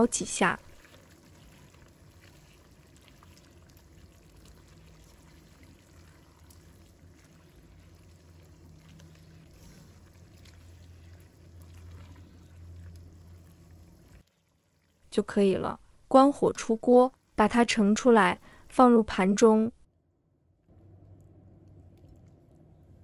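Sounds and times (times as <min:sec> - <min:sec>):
sauce simmering in a wok: 0:00.0 - 0:15.2
low steady hum: 0:00.0 - 0:23.0.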